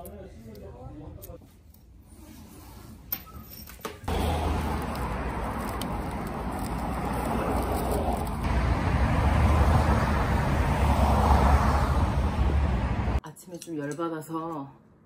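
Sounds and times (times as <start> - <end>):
car road and engine noise: 4.0 - 13.2.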